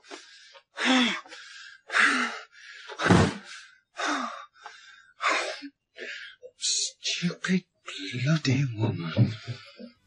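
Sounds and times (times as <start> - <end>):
person gasping and breathing hard: 0.0 - 6.4.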